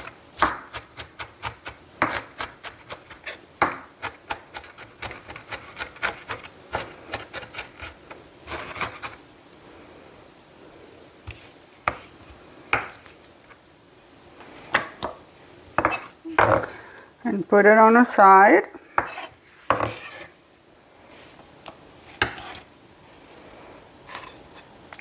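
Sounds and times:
knife chopping on wooden board: 0:00.4 - 0:07.4.

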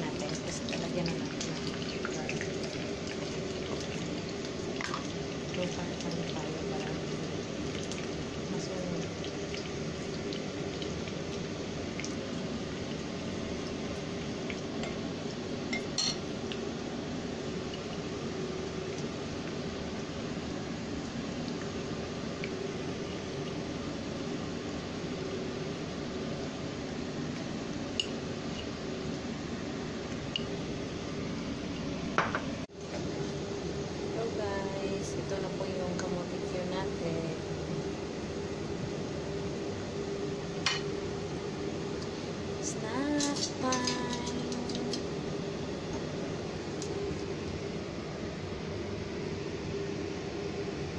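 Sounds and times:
wedges sizzling in hot oil: 0:00.0 - 0:20.0.

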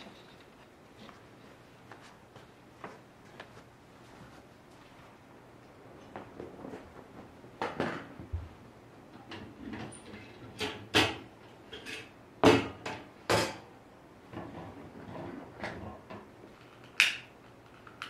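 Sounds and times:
kitchen items knocking and clacking: 0:09.3 - 0:13.7.

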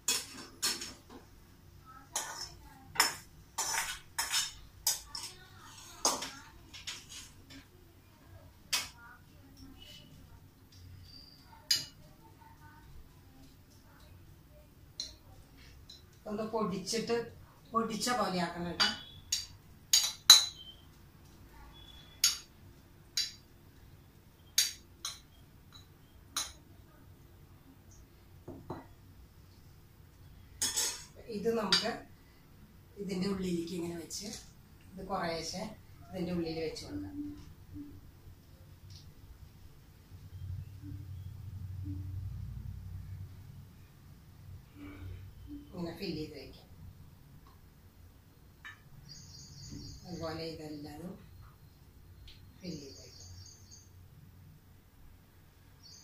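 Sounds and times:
metal spoon scraping frying pan: 0:02.2 - 0:06.2, 0:30.6 - 0:31.8
metal spoon clinking on glass bowl: 0:18.8 - 0:20.7.

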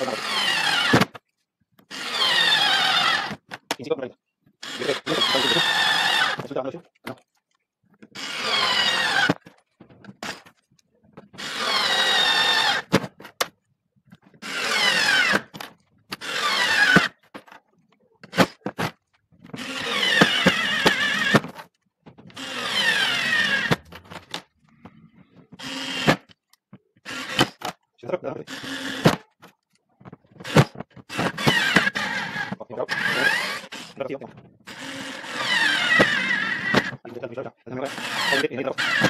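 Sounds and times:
cordless screwdriver motor whine: 0:00.0 - 0:01.1, 0:01.8 - 0:03.5, 0:04.6 - 0:06.5, 0:08.1 - 0:09.5, 0:11.4 - 0:13.0, 0:14.4 - 0:17.2, 0:19.5 - 0:21.6, 0:22.3 - 0:24.5, 0:25.5 - 0:27.7, 0:28.5 - 0:29.2, 0:30.4 - 0:37.0, 0:37.8 - 0:39.0.

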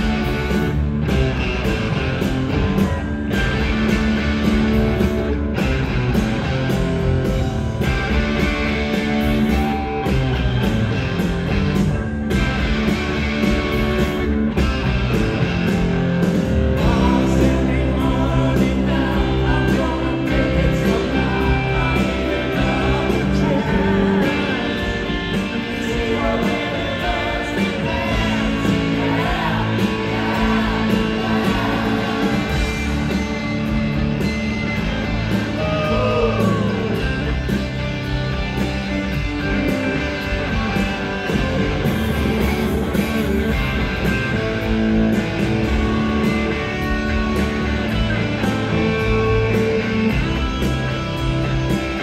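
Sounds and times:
live rock band playing: 0:00.0 - 0:52.0
man singing: 0:16.8 - 0:32.7, 0:35.6 - 0:37.0.

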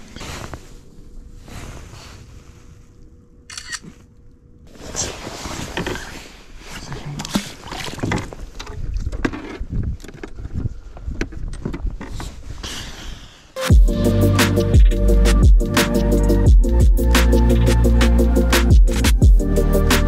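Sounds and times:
water splashing and sloshing: 0:04.7 - 0:10.6.

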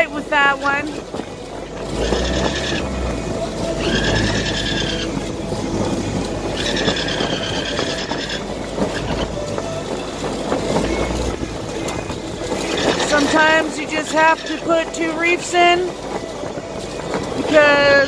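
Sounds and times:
wind rushing over microphone: 0:00.0 - 0:18.0
high squeals: 0:01.8 - 0:05.4, 0:06.4 - 0:14.8.

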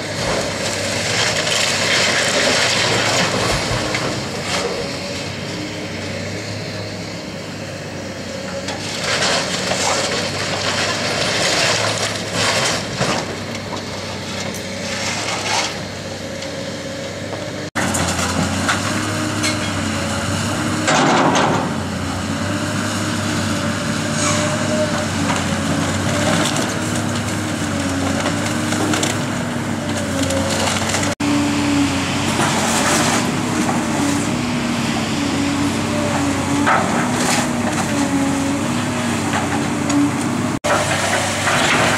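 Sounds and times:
excavator diesel engine running: 0:00.0 - 0:41.9
falling debris clattering: 0:20.8 - 0:22.0, 0:40.6 - 0:41.9
timber crunching and splintering: 0:25.2 - 0:31.2.

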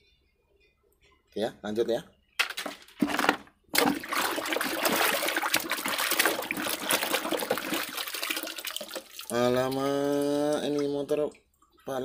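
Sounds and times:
water splashing and sloshing: 0:02.5 - 0:12.0.

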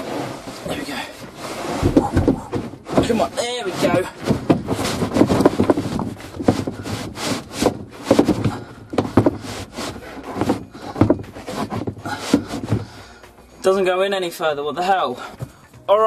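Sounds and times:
wooden board scraping: 0:00.0 - 0:13.2
wooden board knocking: 0:01.8 - 0:13.0.

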